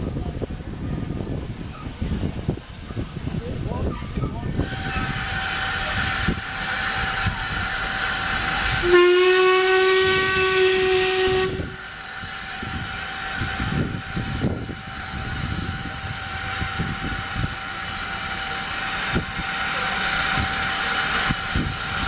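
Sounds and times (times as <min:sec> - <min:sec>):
steam hissing: 0:01.1 - 0:22.0
steam whistle blast: 0:08.7 - 0:11.9.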